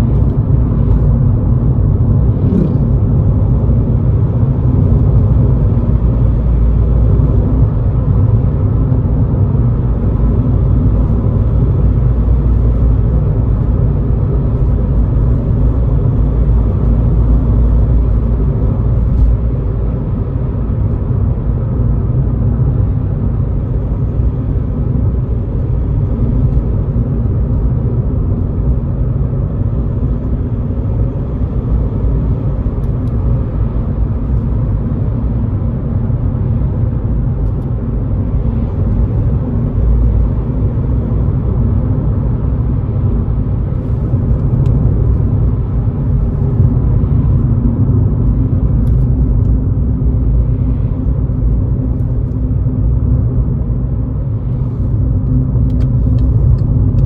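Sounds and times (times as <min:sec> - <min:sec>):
diesel engine cruising: 0:00.0 - 0:57.0
tyre and road noise: 0:00.0 - 0:57.0.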